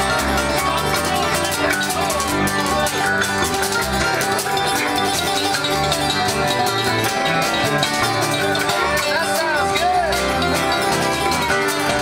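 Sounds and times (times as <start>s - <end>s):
banjo picking: 0.0s - 12.0s
upright bass line: 0.0s - 12.0s.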